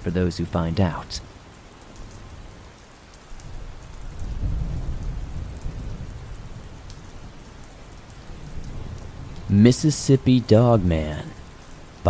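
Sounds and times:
steady rain: 0.0s - 12.0s
low roll of thunder: 3.4s - 9.6s.

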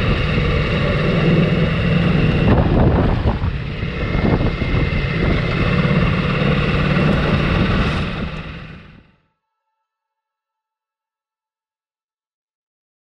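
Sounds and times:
motorcycle engine cruising: 0.0s - 9.1s
wind noise on microphone: 0.0s - 9.1s.

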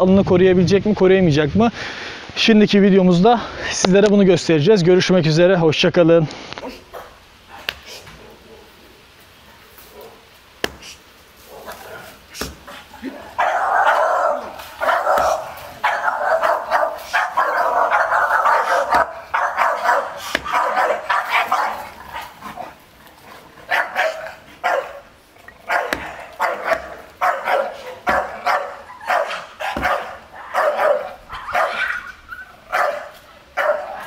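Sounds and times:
dogs barking: 6.8s - 10.4s, 11.4s - 34.0s.

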